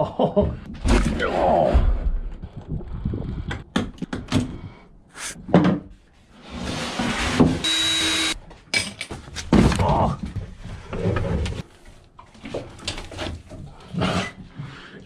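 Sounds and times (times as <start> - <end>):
cordless drill whine: 7.6 - 8.4
knocks and clatter of handling: 8.4 - 13.7.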